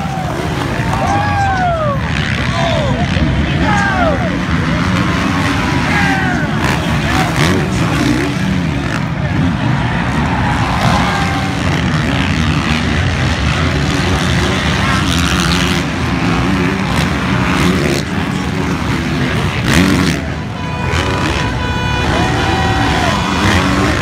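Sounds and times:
dirt bike engines revving: 0.0 - 24.0
engine high-pitched note: 10.8 - 24.0.

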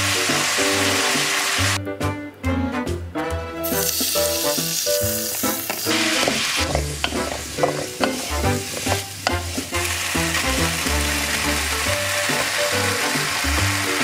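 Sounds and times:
food sizzling in a wok: 0.0 - 1.8, 3.6 - 14.0
wooden spatula scraping a pan: 5.2 - 10.0.

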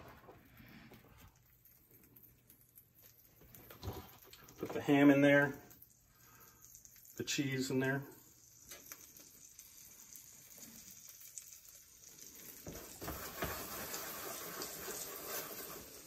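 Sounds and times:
eggs sizzling in a frying pan: 0.0 - 16.0
pan moved on glass cooktop: 12.7 - 15.8.

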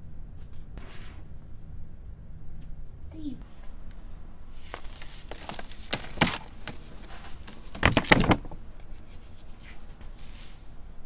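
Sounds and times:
dry crunching by hand: 3.8 - 10.4.

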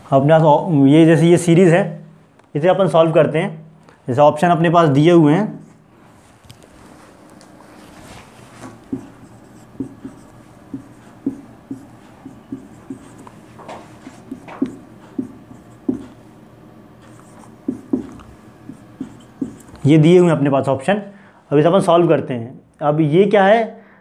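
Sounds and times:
marker writing on whiteboard: 8.6 - 20.0.

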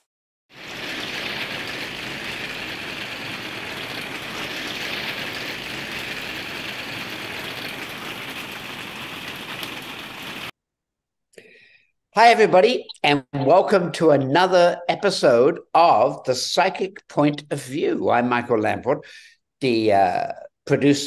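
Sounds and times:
steady rushing hiss: 0.5 - 10.5.

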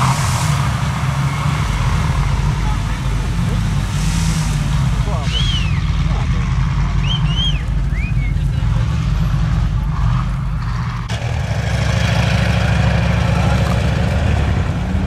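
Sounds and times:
loud hissy rush: 0.0 - 7.1
off-road vehicle engines rumbling: 0.0 - 15.0.

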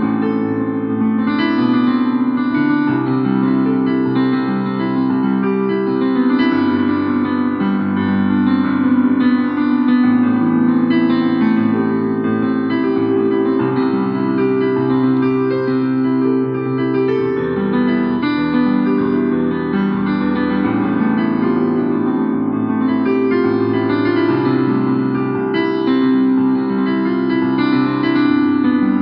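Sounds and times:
electric piano chords: 0.0 - 29.0.

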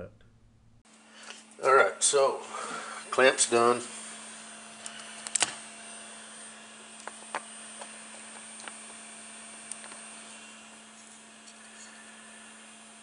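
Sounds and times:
printer fans humming: 1.6 - 13.0.

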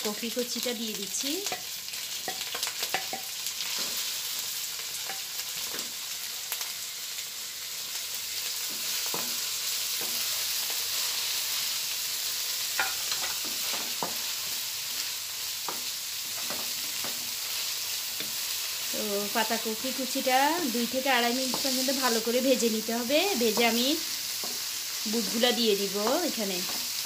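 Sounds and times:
cabbage sizzling in hot oil: 0.0 - 27.0
spatula scraping and tapping pan: 1.4 - 4.1, 8.6 - 10.4, 12.8 - 14.3, 21.4 - 22.2, 23.4 - 27.0.

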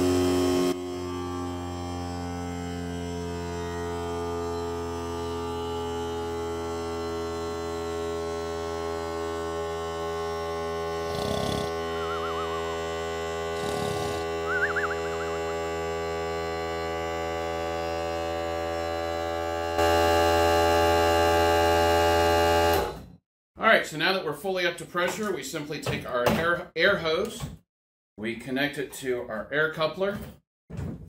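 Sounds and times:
air compressor running: 0.0 - 23.0
warbling chirps: 11.8 - 12.8, 14.0 - 15.5.

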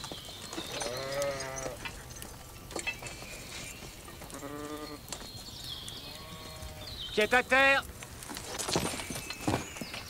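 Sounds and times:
farm animal bleating: 0.8 - 1.8, 4.2 - 5.1, 6.0 - 7.3.

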